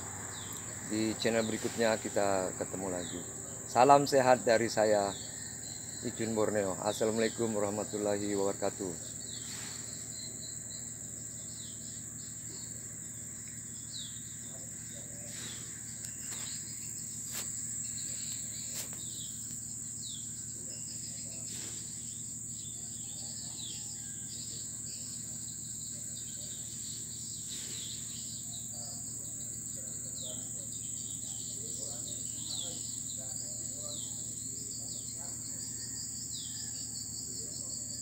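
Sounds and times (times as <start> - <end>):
insect chorus drone: 0.0 - 38.0.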